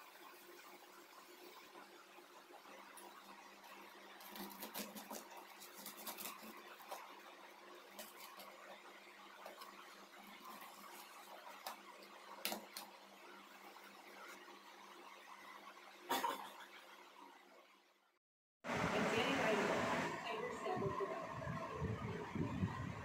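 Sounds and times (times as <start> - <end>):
knife cutting crisp toast: 4.2 - 7.0.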